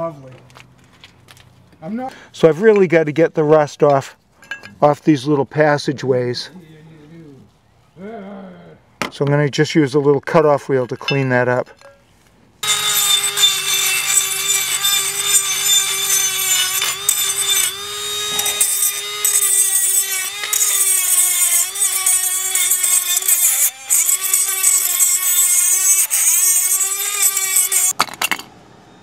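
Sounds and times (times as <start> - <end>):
rotary tool grinding metal: 12.6 - 28.0.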